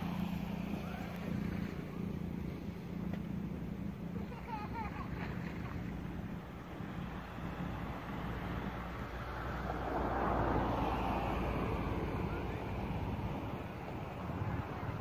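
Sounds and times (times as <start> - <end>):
boat engine drone: 0.0 - 15.0.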